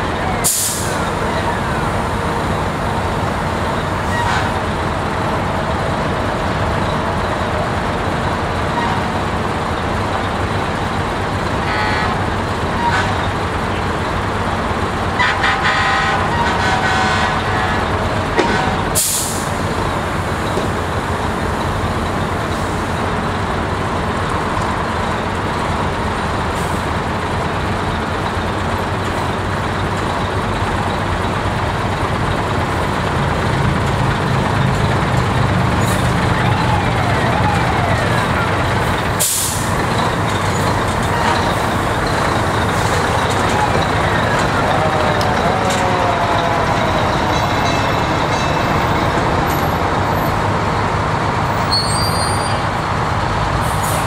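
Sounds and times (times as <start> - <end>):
truck engines idling: 0.0 - 54.0
air brakes hissing: 0.4 - 2.7, 19.0 - 19.7, 38.4 - 48.2, 53.6 - 54.0
horn tooting: 11.6 - 13.4, 15.1 - 19.3, 35.8 - 49.6.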